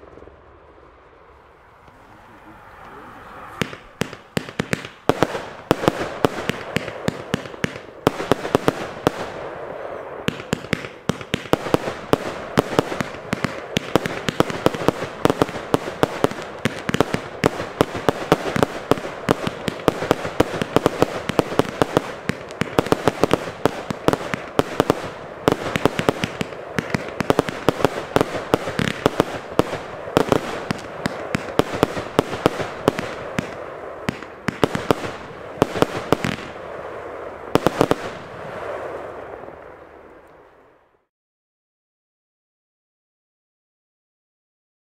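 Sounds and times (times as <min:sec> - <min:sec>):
firework stars popping and crackling: 0:00.0 - 0:40.6
firework battery firing: 0:03.5 - 0:39.0.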